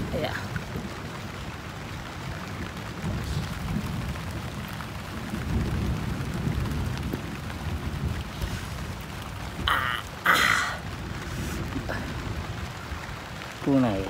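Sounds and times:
heavy rain falling: 0:00.0 - 0:14.0
low uneven rumble: 0:00.0 - 0:14.0.

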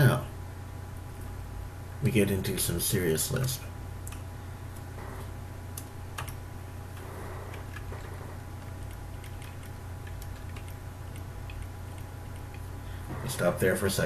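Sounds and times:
steady low hum: 0:00.0 - 0:14.0
keyboard keys clicking: 0:05.8 - 0:06.4, 0:08.8 - 0:12.6.

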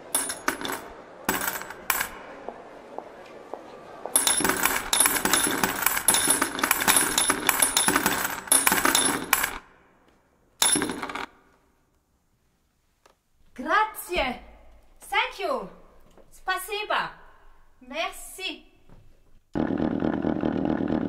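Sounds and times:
accordion bellows clicking and rattling: 0:04.2 - 0:09.6.

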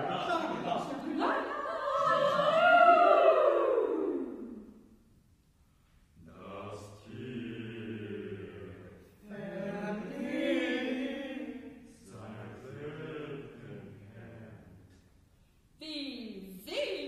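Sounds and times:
mixed choir singing a cappella: 0:00.0 - 0:04.6, 0:06.2 - 0:14.9.

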